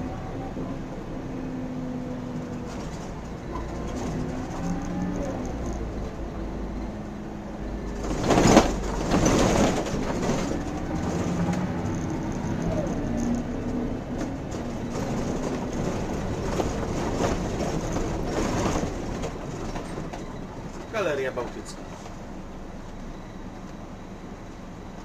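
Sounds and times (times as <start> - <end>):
bus diesel engine running: 0.0 - 25.0
loud clattering rattle: 7.9 - 13.4, 14.5 - 20.9.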